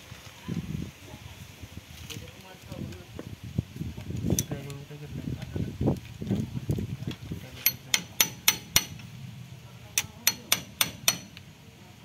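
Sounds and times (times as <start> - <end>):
steel rod tapping on metal: 7.6 - 9.1, 10.0 - 11.4.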